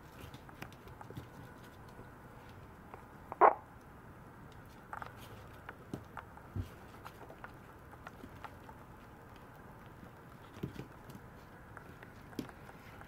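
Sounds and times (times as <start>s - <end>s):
paws tapping on tiled floor: 0.0s - 3.1s, 4.5s - 13.0s.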